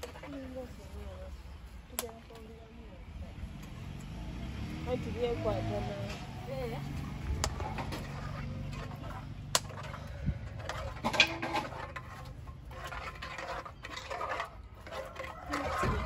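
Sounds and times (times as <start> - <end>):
metal spoon scraping in a pot: 7.4 - 16.0.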